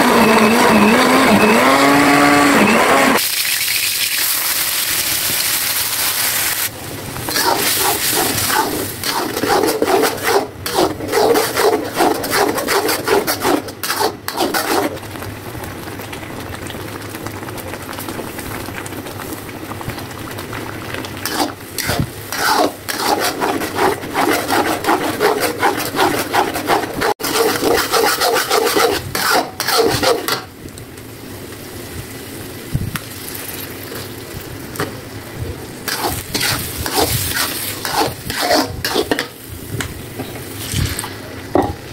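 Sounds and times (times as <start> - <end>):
paste sizzling in hot oil: 3.2 - 30.5, 31.6 - 34.6, 35.6 - 41.3
metal spatula scraping a wok: 7.3 - 15.0, 21.2 - 30.5, 35.9 - 39.4.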